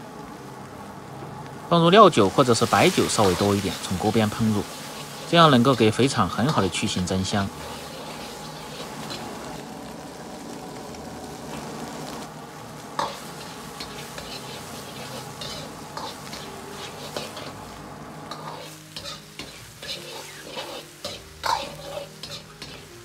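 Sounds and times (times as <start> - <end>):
meat sizzling in hot oil: 0.0 - 23.0
metal ladle scraping wok: 2.3 - 9.8, 12.2 - 22.9.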